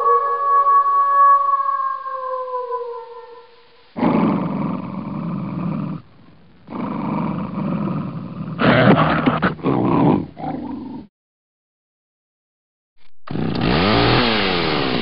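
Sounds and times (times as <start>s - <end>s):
wolf howling: 0.0s - 6.0s
wolf growling: 4.0s - 6.1s, 6.7s - 11.1s
wolf snarling: 4.0s - 6.1s, 6.7s - 11.1s.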